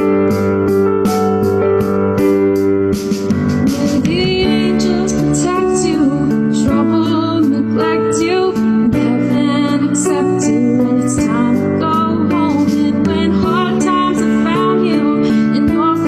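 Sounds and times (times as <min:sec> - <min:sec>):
woman singing: 0:03.6 - 0:16.0.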